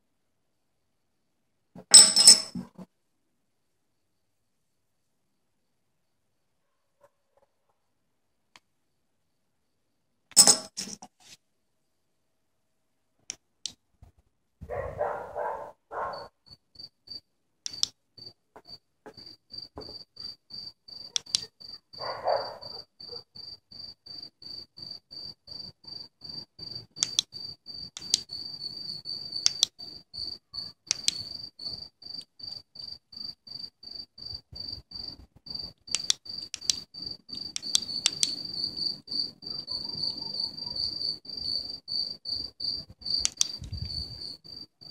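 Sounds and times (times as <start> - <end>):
cricket chirping: 3.6 - 11.0, 13.3 - 44.9
sharp clicks: 17.6 - 18.0, 21.2 - 21.5, 27.0 - 28.4, 29.4 - 29.8, 30.8 - 31.4, 35.8 - 38.5, 43.2 - 44.0.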